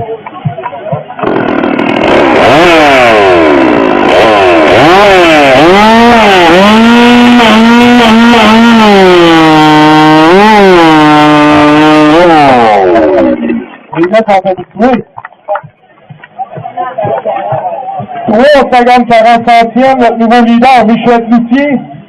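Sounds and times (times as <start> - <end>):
chainsaw cutting log: 1.2 - 13.9
chainsaw revving: 1.2 - 13.9.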